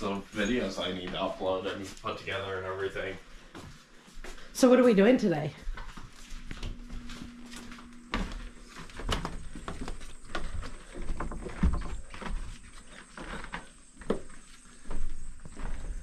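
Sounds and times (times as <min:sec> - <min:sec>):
footsteps on wooden deck: 0:00.6 - 0:02.5, 0:03.1 - 0:16.0.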